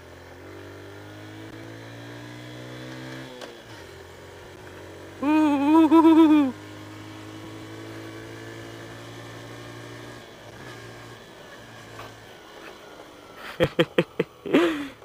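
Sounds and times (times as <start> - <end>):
motorcycle engine running: 3.8 - 15.0.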